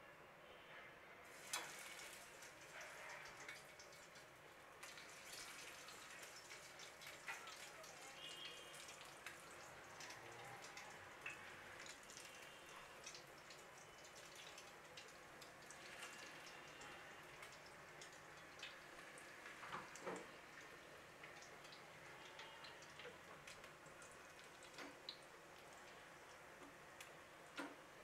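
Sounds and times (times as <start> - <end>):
patty set into hot oil: 1.3 - 12.2
patties sizzling in oil: 1.3 - 28.0.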